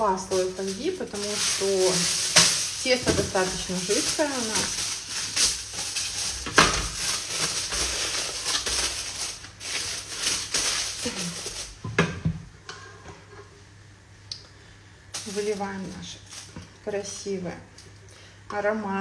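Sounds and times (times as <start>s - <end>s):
aluminium foil crinkling: 0.0s - 11.8s, 15.1s - 17.2s.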